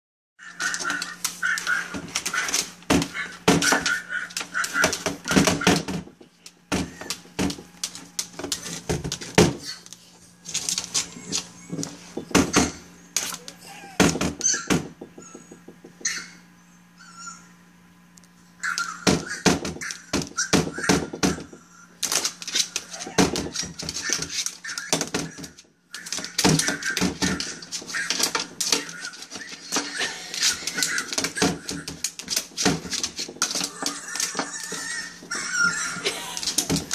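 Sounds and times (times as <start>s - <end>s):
puppy cries through speakers: 0.4s - 5.9s, 10.9s - 17.6s, 18.6s - 22.0s, 22.6s - 32.8s, 33.4s - 36.9s.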